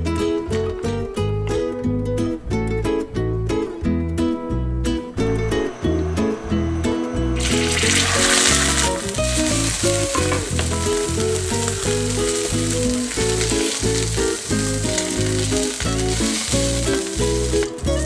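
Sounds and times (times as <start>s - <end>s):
background music: 0.0s - 18.0s
food sizzling in a pan: 7.4s - 18.0s.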